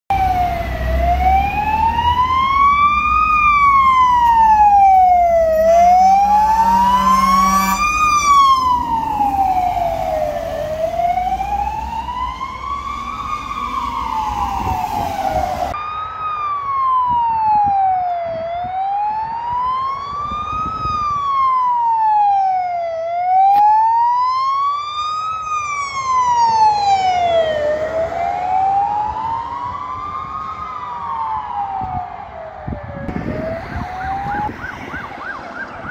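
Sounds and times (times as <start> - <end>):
truck engine rumble: 0.1 - 16.1
fire engine siren wailing: 0.1 - 35.9
low horn blast: 5.5 - 8.8.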